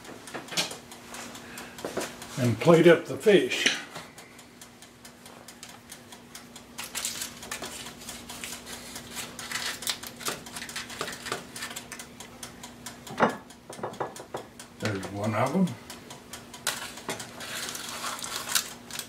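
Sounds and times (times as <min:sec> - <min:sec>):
steady low hum: 0:00.0 - 0:19.0
foil crinkling: 0:06.8 - 0:11.9, 0:16.7 - 0:19.0
spatula scraping a foil pan: 0:07.0 - 0:11.8, 0:16.7 - 0:19.0.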